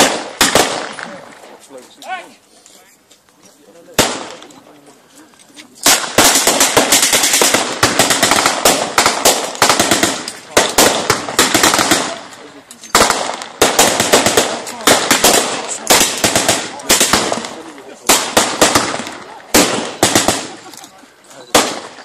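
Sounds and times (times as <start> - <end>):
blank gunfire: 0.0 - 1.2, 4.0 - 4.4, 5.8 - 12.2, 12.9 - 20.6, 21.5 - 22.0.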